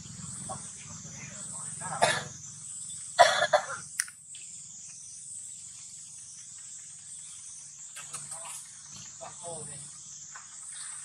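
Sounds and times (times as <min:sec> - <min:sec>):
high-pitched insect drone: 0:00.0 - 0:11.0
sharp click: 0:04.0 - 0:04.2.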